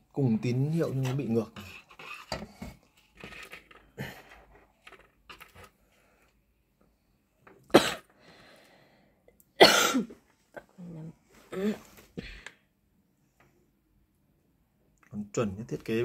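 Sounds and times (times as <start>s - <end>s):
wires rustling and clicking: 0.5s - 6.4s
person coughing: 7.7s - 8.1s, 9.6s - 10.7s.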